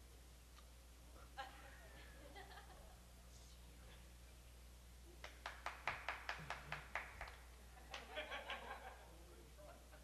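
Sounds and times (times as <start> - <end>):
sharp hand claps: 5.2 - 8.1.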